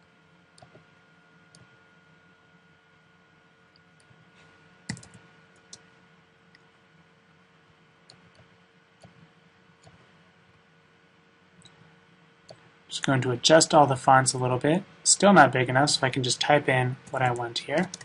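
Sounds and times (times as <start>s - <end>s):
faint steady hum: 0.0s - 18.0s
keyboard keystrokes: 4.9s - 5.8s.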